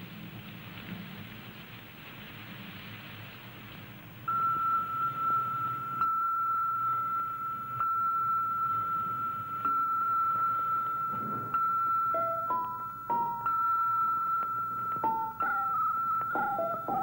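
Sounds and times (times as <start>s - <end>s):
rain-like hiss: 0.0s - 6.0s.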